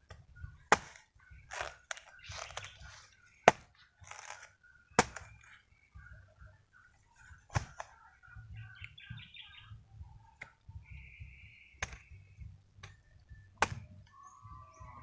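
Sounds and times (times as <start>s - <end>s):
birds chirping: 0.2s - 15.0s
machete chopping: 0.7s - 2.8s, 3.4s - 5.4s, 7.5s - 7.9s, 11.8s - 12.1s, 13.6s - 14.0s.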